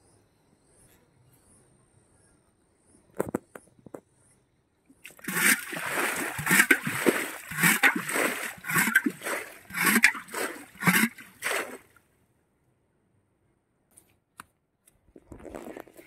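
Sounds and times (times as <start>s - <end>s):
water and mud splashing: 5.0s - 11.9s.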